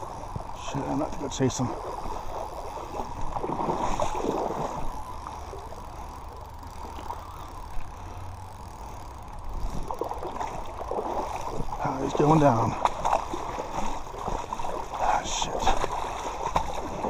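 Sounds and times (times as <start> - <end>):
wind rumble on microphone: 9.4 - 11.8.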